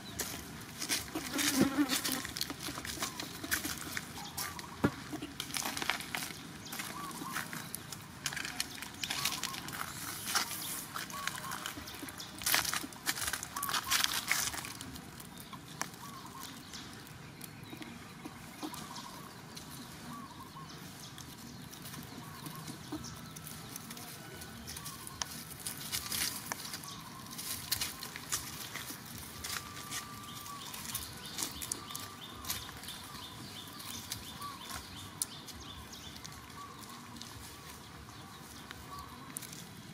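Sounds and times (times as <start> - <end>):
dry leaves crackling and rustling: 0.0 - 39.9
faint chirping animal calls: 6.7 - 7.7, 8.4 - 14.8, 15.9 - 16.7, 17.4 - 39.6.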